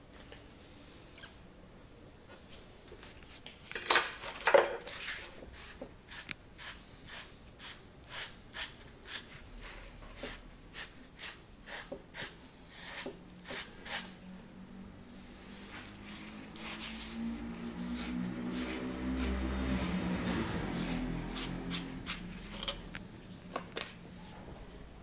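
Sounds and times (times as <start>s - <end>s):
hand scraping clay: 4.8s - 14.2s, 15.4s - 22.9s.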